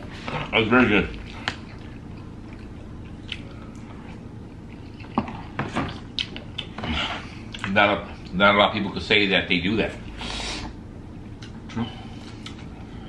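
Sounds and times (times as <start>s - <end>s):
low room hum: 0.0s - 13.0s
chewing: 0.2s - 7.7s.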